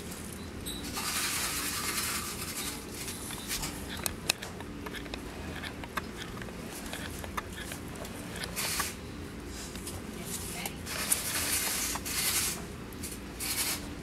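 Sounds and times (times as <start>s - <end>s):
puppies scratching in a box: 0.9s - 9.0s.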